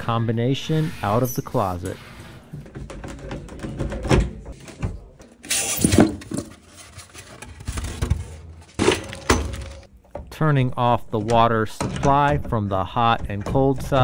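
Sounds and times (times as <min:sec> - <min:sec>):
knocks and clunks: 0:02.5 - 0:06.6, 0:07.4 - 0:10.5, 0:11.1 - 0:14.0
plastic rustling: 0:05.4 - 0:09.9.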